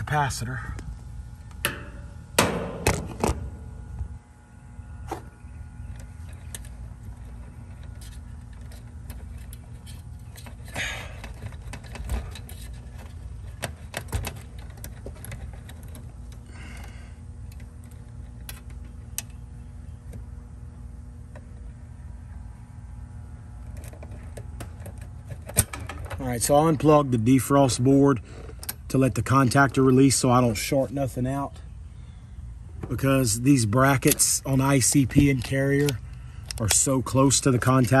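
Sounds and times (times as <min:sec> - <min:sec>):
steady low hum: 0:00.0 - 0:38.0
wires clicking and rattling: 0:06.0 - 0:16.6.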